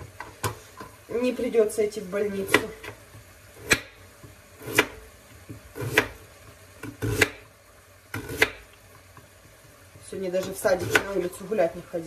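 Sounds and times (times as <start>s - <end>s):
knife chopping on cutting board: 3.6s - 4.0s, 4.6s - 6.2s, 6.8s - 7.5s, 8.1s - 8.7s, 10.4s - 11.2s.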